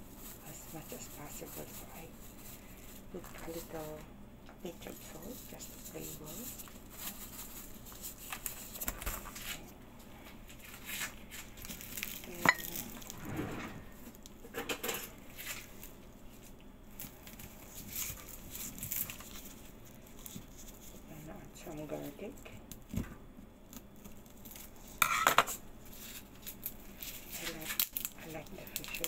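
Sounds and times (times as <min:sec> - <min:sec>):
utensils and containers clinking: 0:12.2 - 0:13.2.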